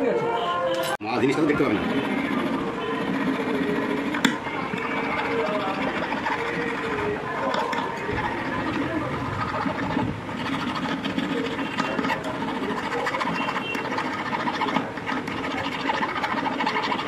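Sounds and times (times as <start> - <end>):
hand file rasping on metal: 1.2 - 17.0.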